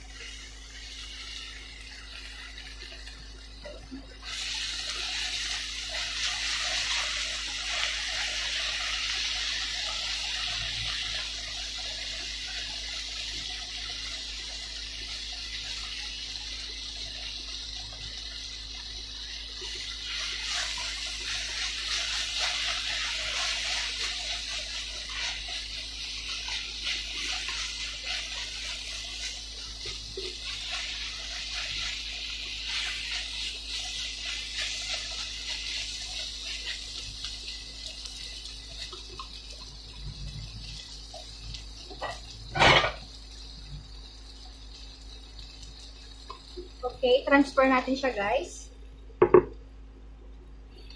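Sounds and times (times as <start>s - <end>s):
food sizzling in a frying pan: 0.0s - 50.9s
wooden utensils scraping a pan: 41.9s - 43.0s.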